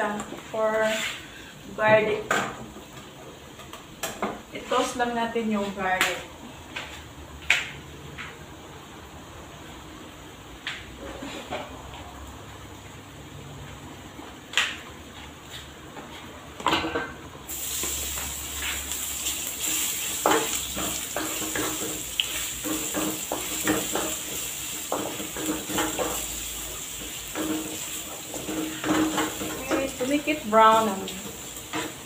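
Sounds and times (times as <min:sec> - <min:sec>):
garlic sizzling in oil: 0:17.5 - 0:32.0
spatula knocking and scraping pan: 0:19.6 - 0:32.0.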